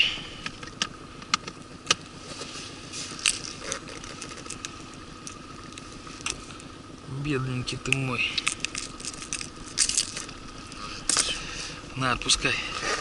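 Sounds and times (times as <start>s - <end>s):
fishing tackle clicks and scrapes: 8.4s - 10.3s.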